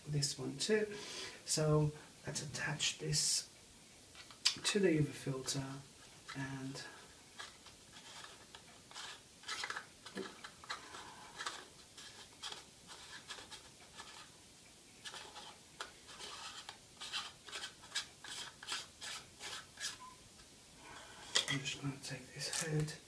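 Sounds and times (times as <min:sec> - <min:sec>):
faint scratching: 0:05.4 - 0:14.4, 0:15.0 - 0:20.2, 0:20.8 - 0:23.0.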